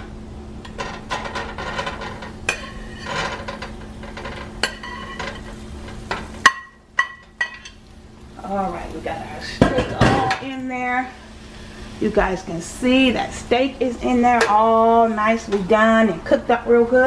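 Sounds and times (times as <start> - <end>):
low hum and hiss: 0.0 - 17.0
utensil clinking against pan: 0.8 - 7.8.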